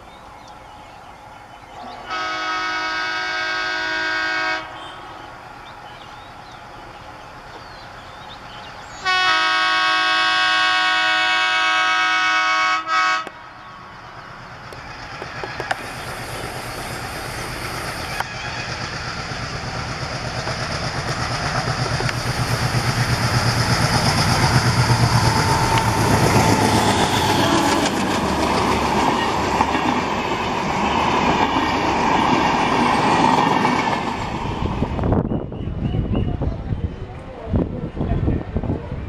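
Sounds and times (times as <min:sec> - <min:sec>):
diesel locomotive engine: 0:00.0 - 0:39.0
wheels clattering over rail joints: 0:19.6 - 0:30.5.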